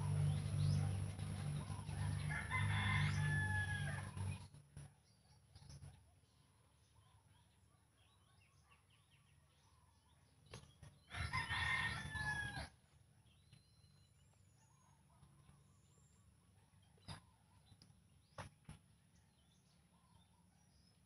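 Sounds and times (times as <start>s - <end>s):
small birds chirping: 0.0s - 21.0s
rooster crowing: 1.9s - 4.4s, 11.1s - 12.7s.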